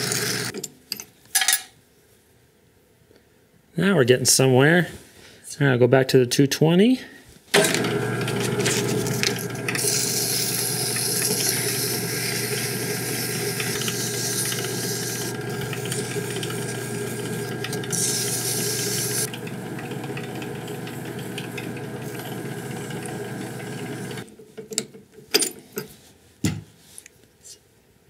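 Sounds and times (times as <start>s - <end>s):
drill press motor humming: 0.0s - 0.5s, 7.6s - 24.2s
sandpaper hissing on spinning wood: 0.0s - 0.5s, 8.5s - 19.3s.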